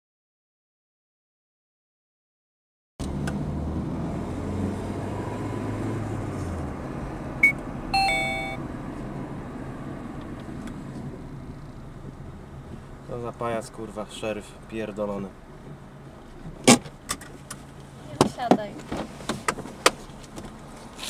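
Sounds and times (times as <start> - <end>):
car engine and road noise: 3.0 - 21.0
two-tone car horn beep: 7.4 - 8.6.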